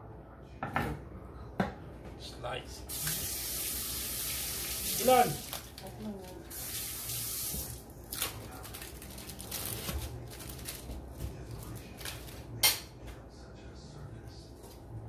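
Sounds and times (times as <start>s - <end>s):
faucet running: 2.9s - 5.7s, 6.5s - 7.8s.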